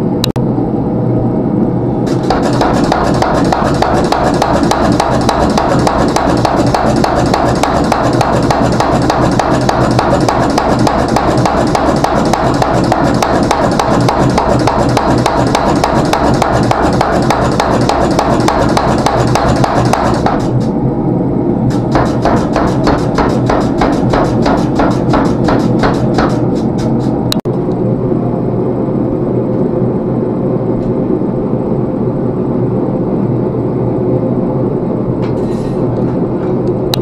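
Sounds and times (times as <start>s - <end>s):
low running hum: 0.0s - 37.0s
power hammer pounding metal: 2.1s - 20.8s, 21.7s - 27.3s.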